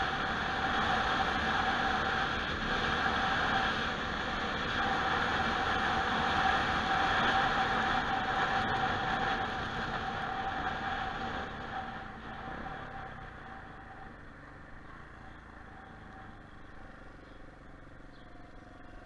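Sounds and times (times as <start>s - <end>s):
wind rushing over microphone: 0.0s - 16.5s
motorcycle engine hum: 0.0s - 19.0s.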